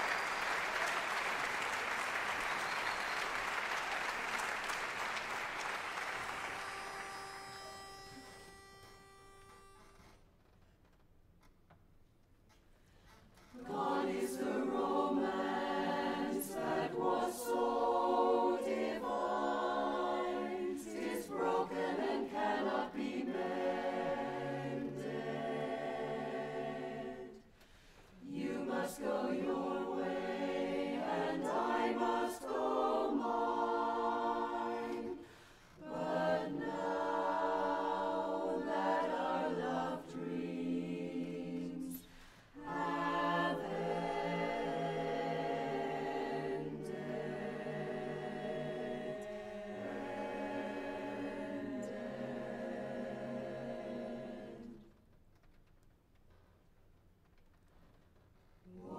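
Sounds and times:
chorus singing in close harmony: 13.5 - 27.6, 28.2 - 54.9.

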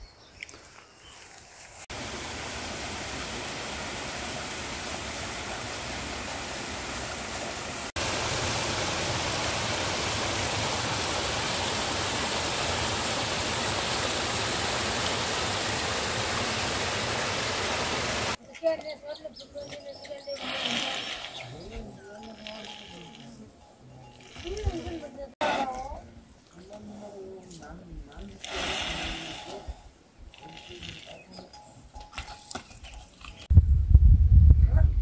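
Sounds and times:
stream splashing down waterfall: 1.9 - 18.4.

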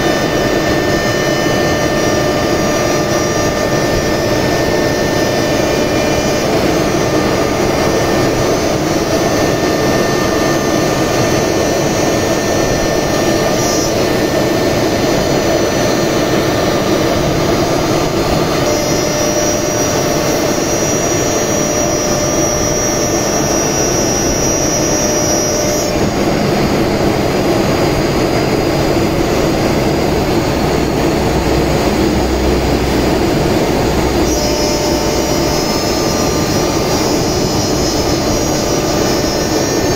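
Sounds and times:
router cutting panel: 0.0 - 39.9
bright high tone: 30.2 - 38.2.

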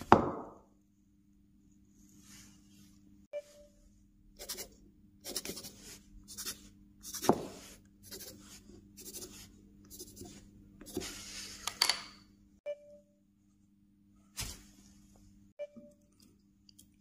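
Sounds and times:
pencil scribbling on wood: 5.3 - 11.1.

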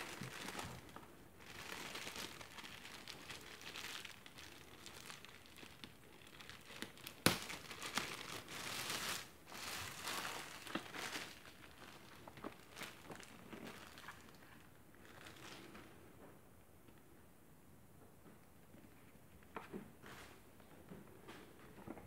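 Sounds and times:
plastic bag crinkling: 0.0 - 15.8.

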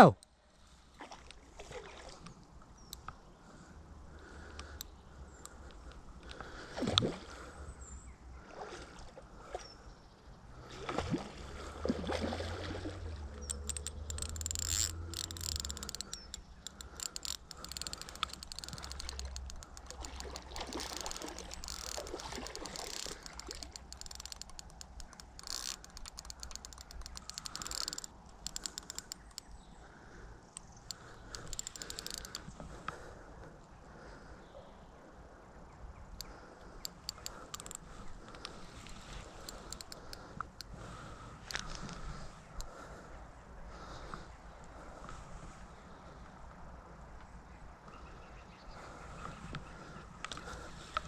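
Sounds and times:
fishing reel clicking rapidly: 13.4 - 29.5, 30.9 - 32.4, 36.8 - 37.8.

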